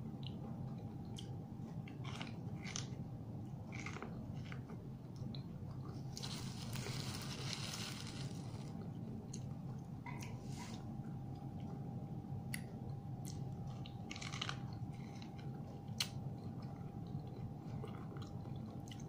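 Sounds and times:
chewing corn on the cob: 0:00.2 - 0:03.0, 0:03.6 - 0:09.5, 0:12.5 - 0:19.0
rustling: 0:06.2 - 0:08.7
crisp crunches of kernels: 0:06.2 - 0:08.8, 0:14.0 - 0:14.7.

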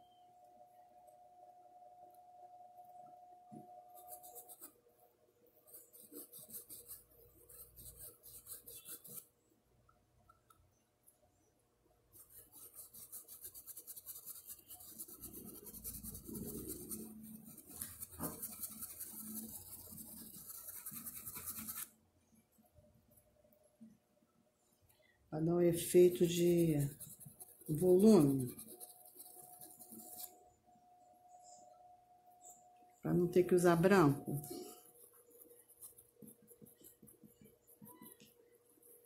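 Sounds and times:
brush scrubbing porcelain cup: 0:05.7 - 0:09.2, 0:12.2 - 0:21.9, 0:25.9 - 0:30.4.

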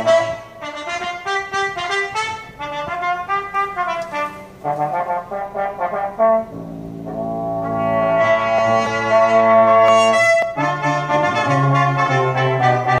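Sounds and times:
music with long held chords: 0:06.2 - 0:13.0.

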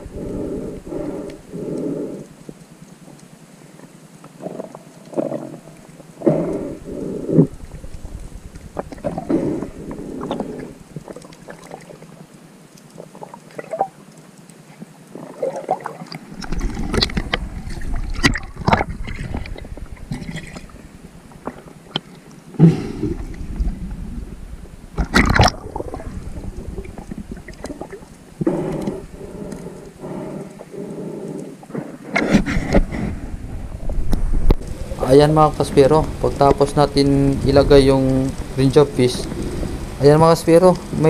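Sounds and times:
muffled underwater swishes and gurgles: 0:00.0 - 0:41.0
low rumble: 0:06.4 - 0:11.1, 0:16.6 - 0:21.6, 0:23.0 - 0:28.3, 0:32.8 - 0:40.2.

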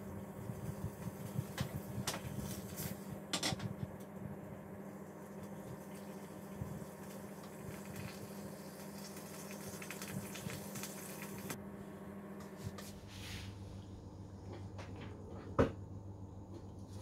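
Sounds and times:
cream simmering fizz: 0:04.9 - 0:11.6.

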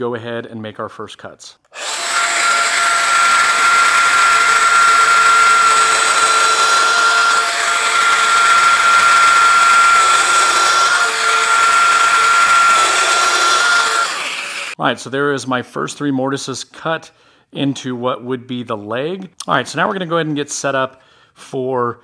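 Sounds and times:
power joiner whining while cutting wood: 0:01.7 - 0:14.8.

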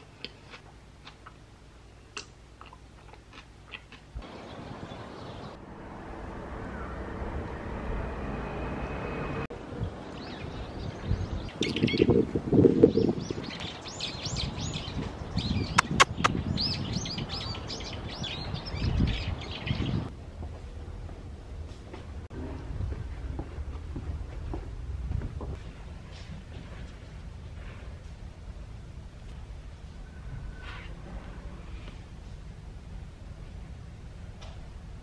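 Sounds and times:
steady outdoor rumble: 0:00.0 - 0:35.0
small birds chirping: 0:03.7 - 0:05.6, 0:09.8 - 0:12.2, 0:12.9 - 0:20.1.

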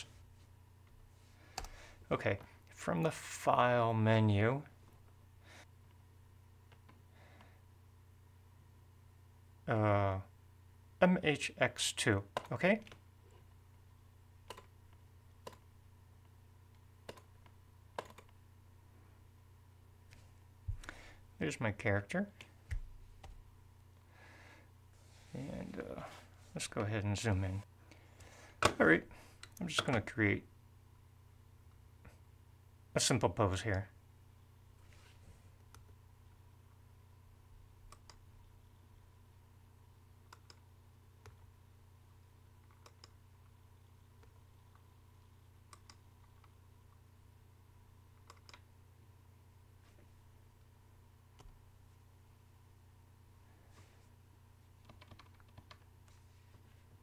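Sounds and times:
faint low hum: 0:00.0 - 0:57.0
computer mouse clicking: 0:14.4 - 0:14.7, 0:15.4 - 0:15.6, 0:16.7 - 0:18.4, 0:37.9 - 0:38.2, 0:40.2 - 0:41.4, 0:42.6 - 0:43.2, 0:45.7 - 0:46.6, 0:48.1 - 0:48.7, 0:54.8 - 0:56.2
faint computer input clicks: 0:48.2 - 0:48.6.

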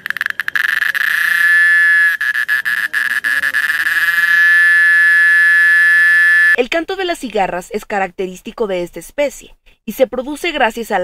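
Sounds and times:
cicada buzzing: 0:00.0 - 0:06.6.

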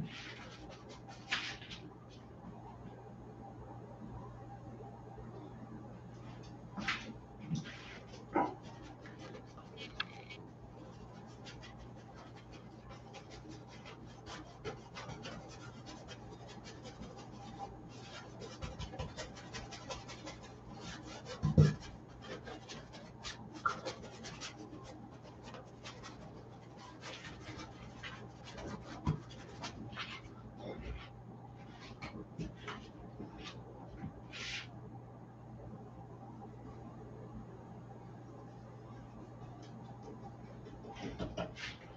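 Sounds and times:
paintbrush scratching on canvas: 0:00.0 - 0:01.9, 0:07.5 - 0:34.8.

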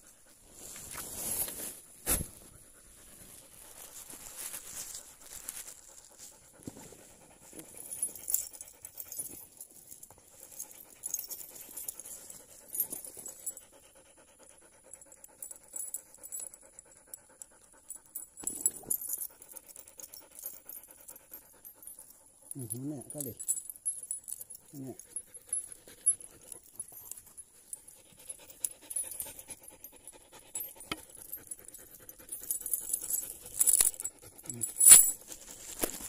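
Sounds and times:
metal chain rattling: 0:07.4 - 0:13.8, 0:15.0 - 0:16.7, 0:17.7 - 0:36.0
dog panting rapidly: 0:10.3 - 0:18.4, 0:25.0 - 0:34.9.

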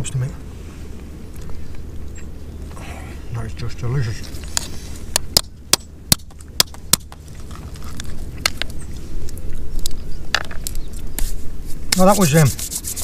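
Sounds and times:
shellfish shell cracking: 0:05.2 - 0:10.8
rough rubbing: 0:11.2 - 0:13.0.

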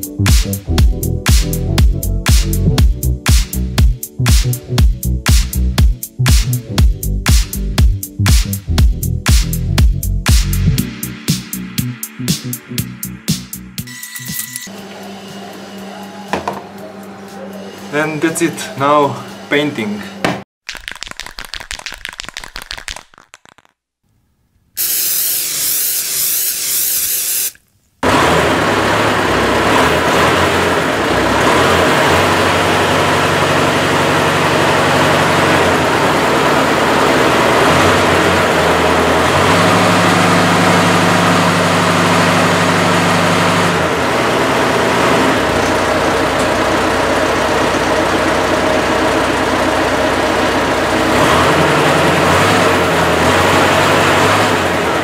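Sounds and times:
tractor engine running: 0:28.0 - 0:55.0.

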